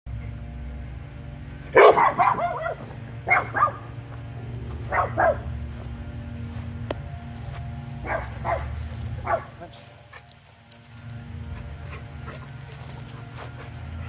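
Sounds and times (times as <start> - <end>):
steady low hum: 0.1 - 14.0
dog barking: 1.7 - 4.0, 4.8 - 5.6, 8.0 - 9.6.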